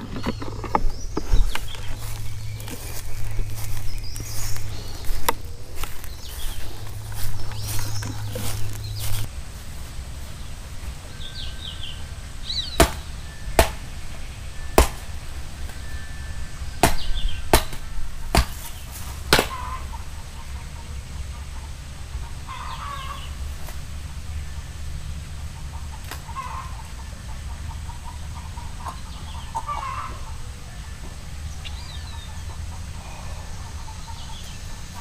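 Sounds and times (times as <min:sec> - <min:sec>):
birds calling: 0:00.0 - 0:35.0
machete chopping coconut: 0:12.7 - 0:13.9, 0:14.7 - 0:15.8, 0:16.8 - 0:19.6.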